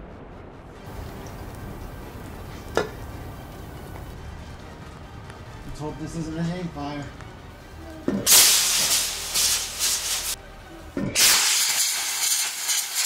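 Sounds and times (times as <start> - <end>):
model rocket engine hissing: 8.3 - 10.4, 11.2 - 13.0.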